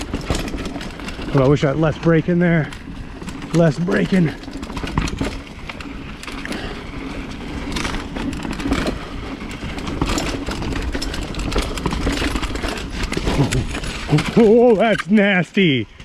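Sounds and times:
bike rattling and knocking: 0:00.0 - 0:16.0
bike tyres rumbling on dirt trail: 0:00.0 - 0:16.0.

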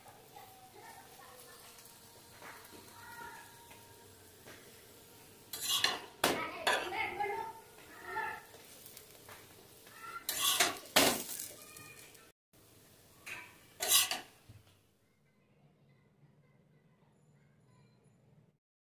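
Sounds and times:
metal spatula scraping a griddle: 0:00.1 - 0:09.3, 0:10.0 - 0:12.1, 0:13.3 - 0:14.4.

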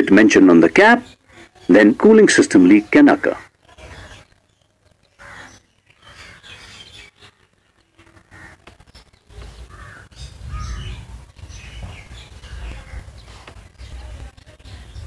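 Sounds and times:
crow cawing: 0:05.2 - 0:06.4, 0:08.2 - 0:08.7, 0:09.6 - 0:11.0.

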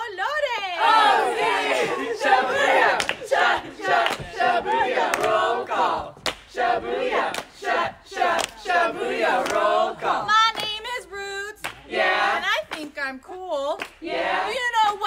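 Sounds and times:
group chanting call-and-response: 0:00.7 - 0:12.8, 0:13.8 - 0:15.0
hand claps: 0:02.9 - 0:06.6, 0:07.2 - 0:07.6, 0:08.3 - 0:08.7, 0:09.4 - 0:09.7, 0:10.5 - 0:10.8, 0:11.6 - 0:11.9, 0:12.6 - 0:13.0, 0:13.7 - 0:14.0.

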